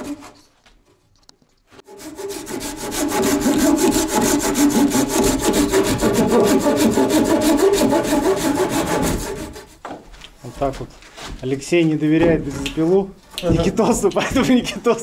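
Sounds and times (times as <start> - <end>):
hand saw cutting log: 0.0 - 0.4, 1.8 - 9.8.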